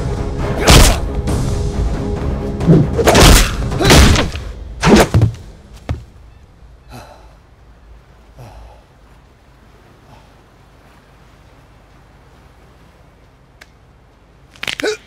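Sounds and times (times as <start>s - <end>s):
heavy punch thuds: 3.1s - 6.0s.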